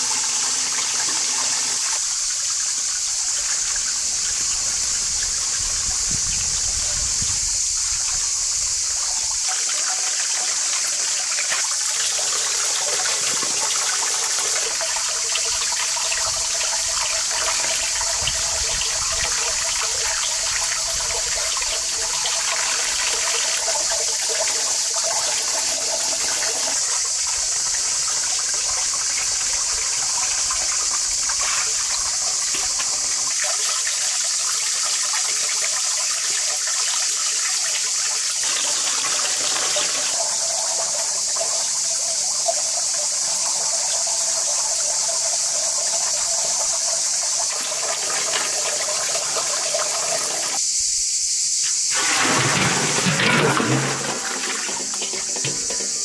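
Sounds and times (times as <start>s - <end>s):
tap running into metal basin: 0.0s - 7.0s, 7.9s - 50.6s, 51.6s - 56.0s
greens rinsed by hand: 36.5s - 50.6s, 51.6s - 56.0s.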